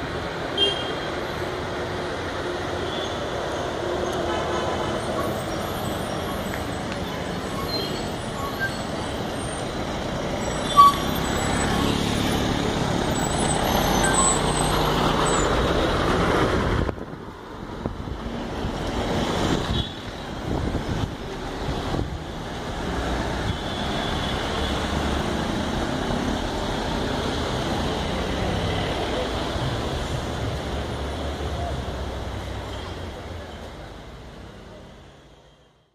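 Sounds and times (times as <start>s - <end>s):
bus diesel engine: 0.0s - 35.9s
motorcycles passing: 11.0s - 16.8s.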